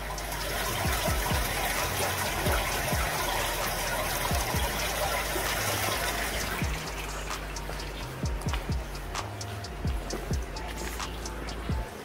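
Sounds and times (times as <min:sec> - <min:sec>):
cave stream running: 0:00.0 - 0:12.0
dull low thuds: 0:00.5 - 0:01.7, 0:02.5 - 0:03.4, 0:04.3 - 0:05.0, 0:06.4 - 0:12.0.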